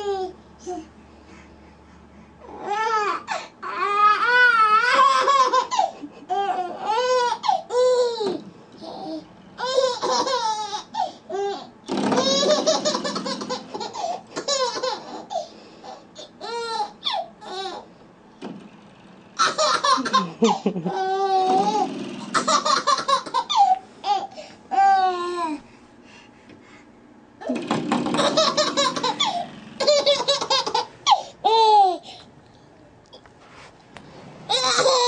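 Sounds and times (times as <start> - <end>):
baby laughing: 4.6 - 17.8, 19.4 - 25.4, 27.4 - 32.1, 34.5 - 35.0.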